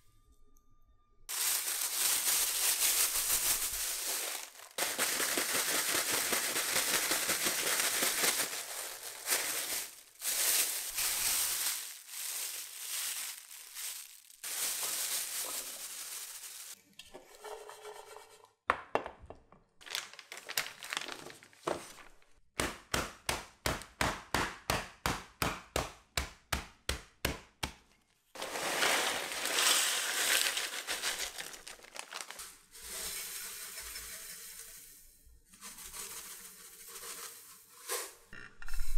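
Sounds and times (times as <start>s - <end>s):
aluminium foil crinkling: 1.3s - 16.8s, 19.8s - 22.2s, 28.4s - 34.8s
plastic bag crinkling: 1.3s - 16.8s, 19.8s - 22.4s, 28.4s - 32.7s.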